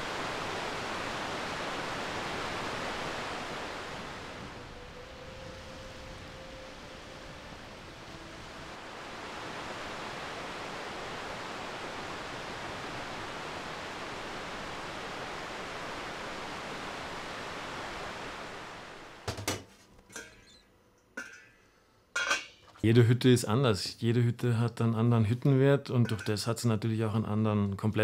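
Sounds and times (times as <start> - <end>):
steady rushing noise: 0.0 - 19.4
pots and kitchenware clinking: 19.3 - 20.6, 21.2 - 22.8.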